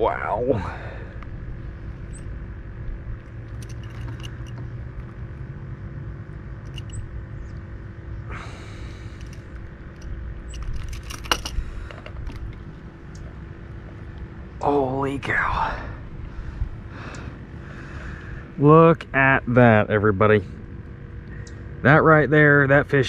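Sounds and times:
low rumble: 0.0s - 23.0s
light clicks and rustles: 3.2s - 5.2s, 9.1s - 14.3s.

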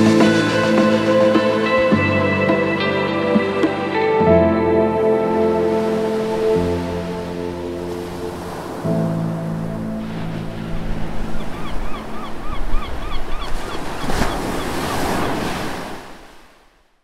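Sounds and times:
held music chord: 0.0s - 10.2s
ocean surf washing in: 0.0s - 16.7s.

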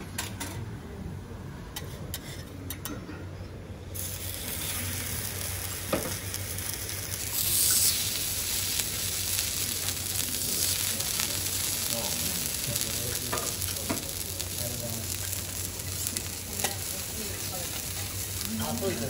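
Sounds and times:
potatoes sizzling on a griddle: 4.0s - 19.0s.

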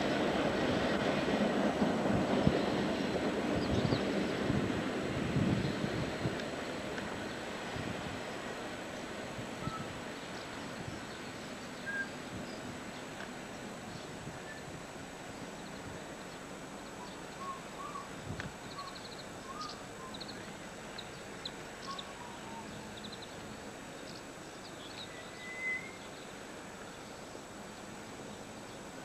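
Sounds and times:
steady hiss: 0.0s - 29.0s
small birds chirping: 18.7s - 26.3s.

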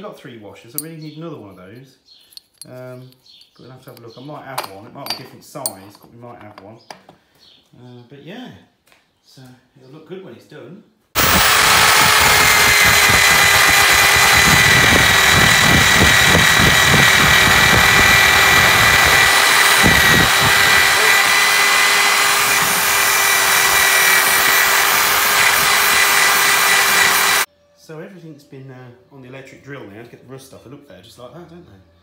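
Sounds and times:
electric drill motor whining: 11.2s - 27.5s.

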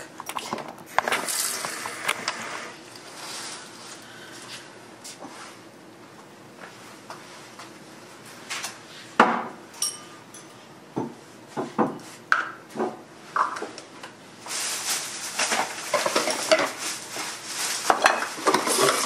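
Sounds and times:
plastic bag rustling: 3.0s - 4.5s, 14.4s - 19.0s
glassware knocks and clinks: 9.2s - 11.1s
glassy ring: 9.8s - 10.5s.

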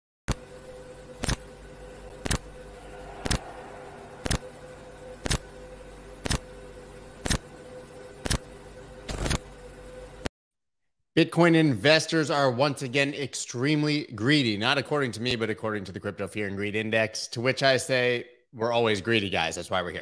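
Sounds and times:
low electronic hum: 0.3s - 10.3s
faint held tone: 2.5s - 6.0s.

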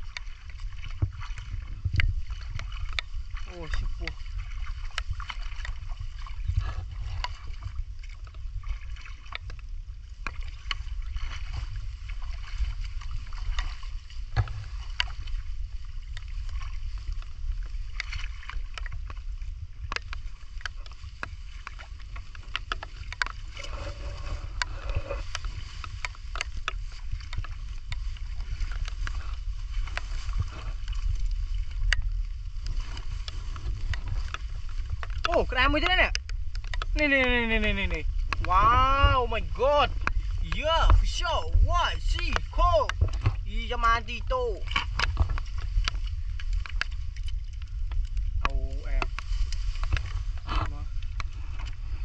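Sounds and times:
muddy water splashing: 0.0s - 52.0s
low rumble: 10.5s - 20.4s, 23.0s - 52.0s.

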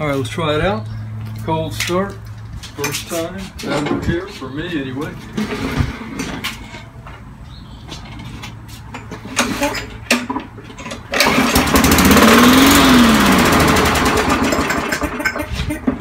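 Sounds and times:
lawn mower engine starting and running: 5.1s - 7.3s, 8.0s - 16.0s.

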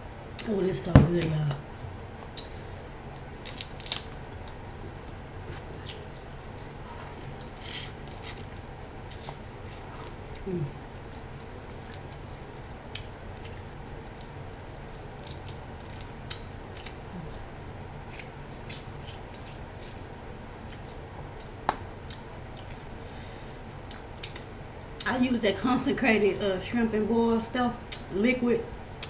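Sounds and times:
crab shells cracking: 3.1s - 4.6s, 11.0s - 17.0s.

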